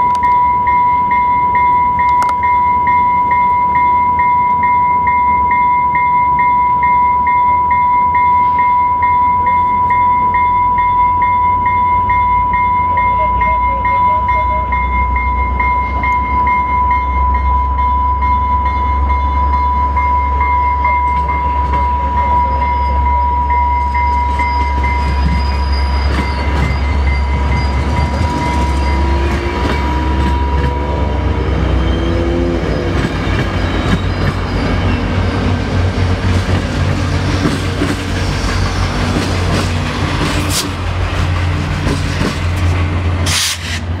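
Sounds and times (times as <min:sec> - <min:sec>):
steady high-pitched tone: 0:00.0 - 0:33.0
train rumbling and clattering by: 0:00.0 - 0:44.0.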